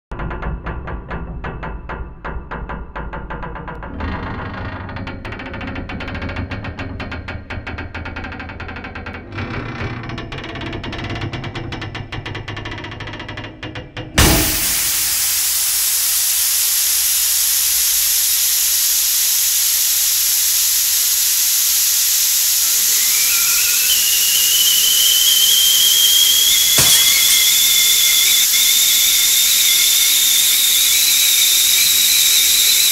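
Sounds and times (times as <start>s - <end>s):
sharp crack: 14.2s - 16.4s, 23.2s - 29.6s
steam hissing: 14.2s - 32.9s
high whistle rising in pitch: 22.3s - 32.9s.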